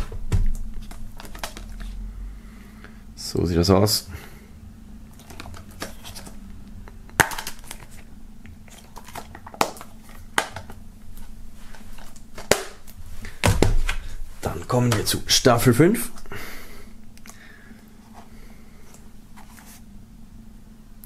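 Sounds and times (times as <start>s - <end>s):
faint handling noise: 7.4s - 16.3s, 17.1s - 19.9s.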